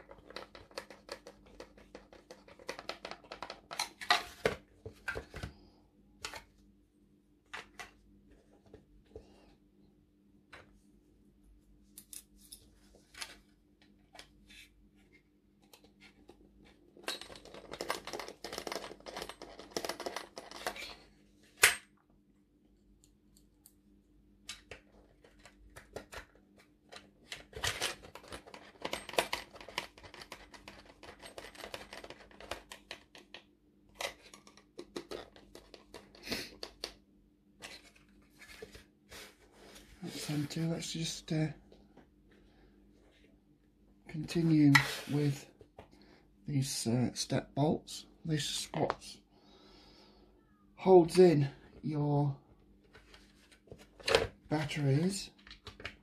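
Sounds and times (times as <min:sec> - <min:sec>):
small parts clicking and clattering: 0:17.0 - 0:21.0, 0:24.5 - 0:33.4.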